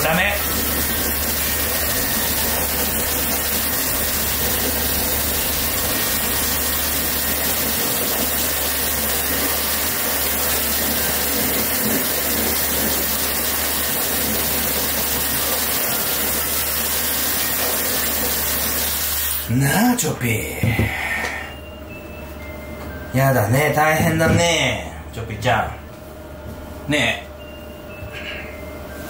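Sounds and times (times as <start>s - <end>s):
water running from tap: 0.0s - 19.5s.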